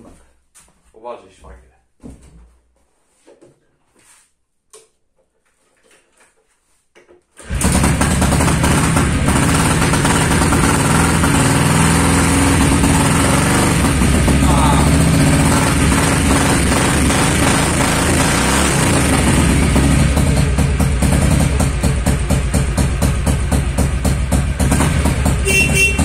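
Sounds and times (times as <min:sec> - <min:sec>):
motorcycle engine kick-started: 0:07.4 - 0:12.9
engine running steadily: 0:07.5 - 0:26.0.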